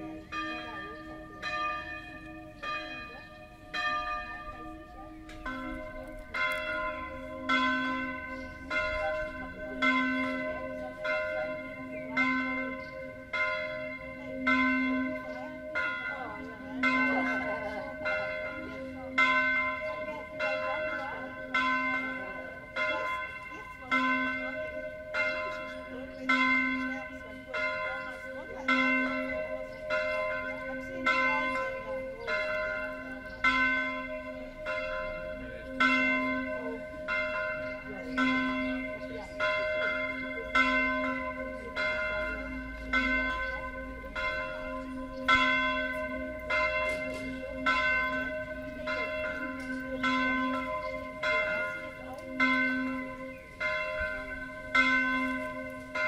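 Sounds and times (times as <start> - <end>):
church bell ringing: 0.0 - 56.0.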